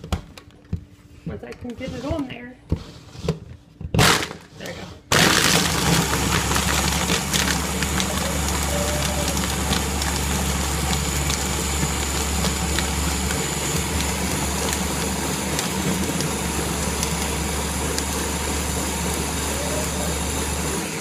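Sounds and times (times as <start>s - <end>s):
blender motor running: 5.1s - 21.0s.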